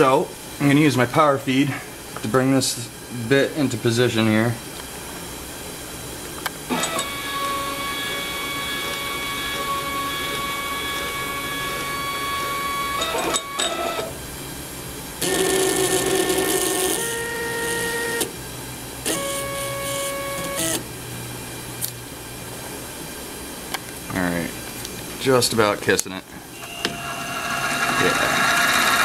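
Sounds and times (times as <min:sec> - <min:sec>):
stepper motor whining: 0:06.7 - 0:14.2, 0:26.6 - 0:29.0.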